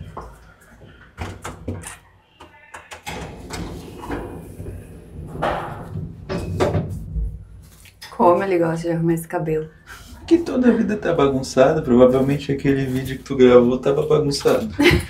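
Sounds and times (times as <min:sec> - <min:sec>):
heavy door thumps: 0:03.0 - 0:07.4.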